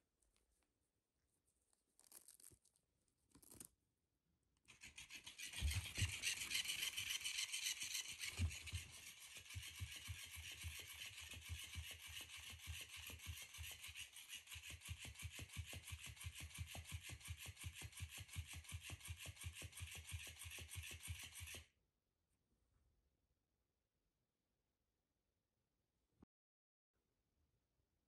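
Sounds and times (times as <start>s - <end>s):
small toy motor buzzing: 4.7s - 19.0s.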